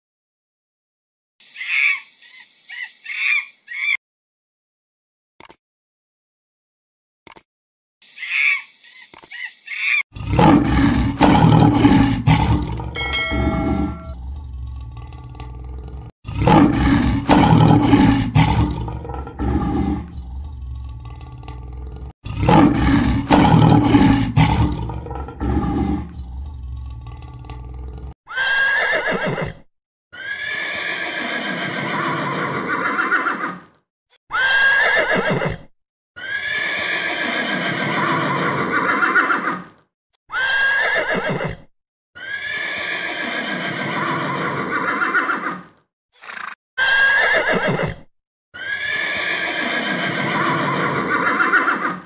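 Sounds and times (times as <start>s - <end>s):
horse neighing: 12.6s - 15.2s, 28.3s - 29.6s, 30.2s - 33.6s, 34.3s - 35.6s, 36.2s - 39.6s, 40.3s - 41.6s, 42.2s - 45.6s, 46.2s - 52.0s.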